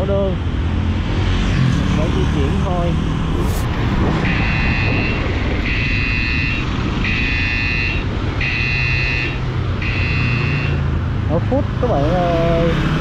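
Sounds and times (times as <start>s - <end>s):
phone alert tone: 4.2s - 10.7s.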